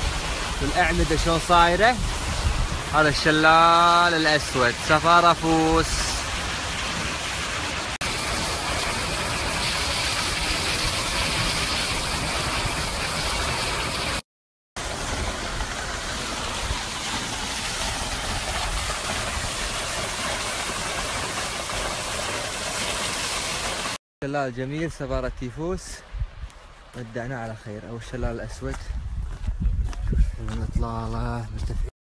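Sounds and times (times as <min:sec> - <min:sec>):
waterfall rushing water: 0:14.8 - 0:24.0.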